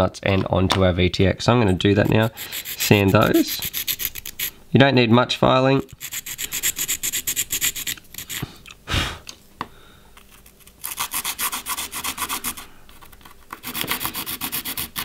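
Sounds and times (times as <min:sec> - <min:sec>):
hand file scraping metal: 0:01.7 - 0:04.5, 0:05.9 - 0:08.5, 0:10.8 - 0:12.6, 0:13.6 - 0:15.0.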